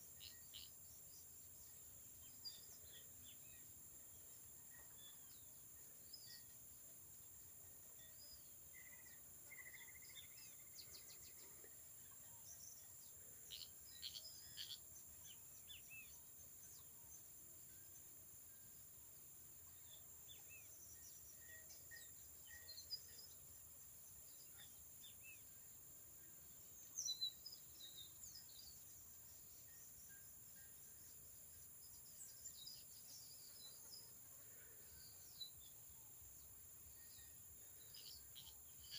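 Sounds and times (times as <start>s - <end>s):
small bird chirps: 8.0s - 17.2s, 37.0s - 38.9s.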